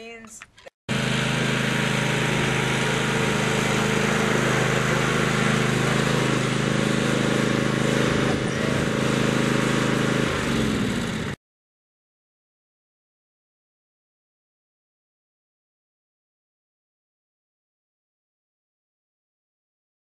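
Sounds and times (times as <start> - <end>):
riding lawn mower engine running: 0.9 - 11.4.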